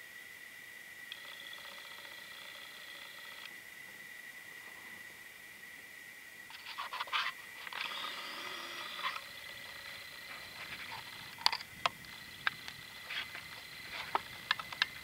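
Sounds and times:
faint high-pitched whine: 0.0s - 15.0s
zoom motor whirring: 1.1s - 3.5s, 6.6s - 14.9s.

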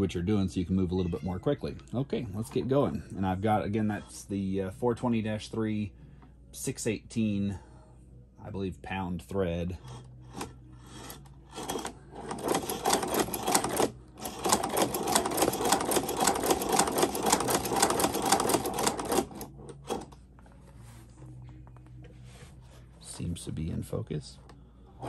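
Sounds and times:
sewing machine clicking: 11.6s - 20.2s.

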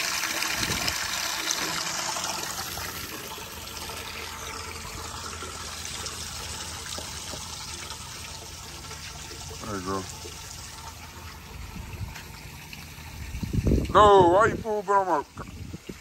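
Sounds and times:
running water hiss: 0.0s - 16.0s.

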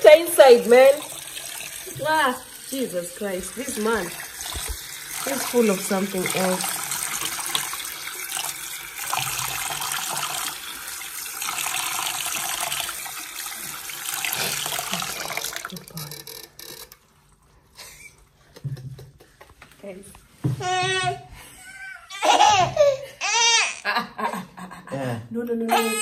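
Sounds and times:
water running from tap: 0.0s - 17.4s.

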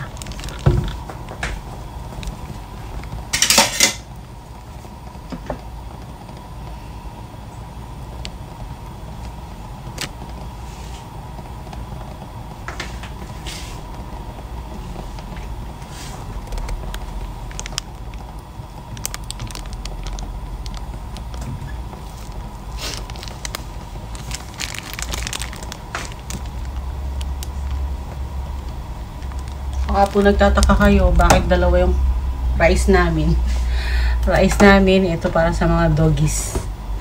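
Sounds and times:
gas stove burner rumbling: 0.0s - 37.0s
kitchen utensils clinking: 3.4s - 4.0s.

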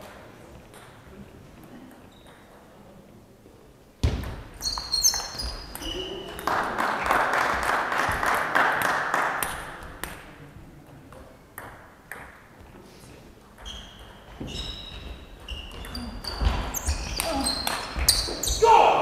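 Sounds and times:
spectators clapping: 6.3s - 10.2s.

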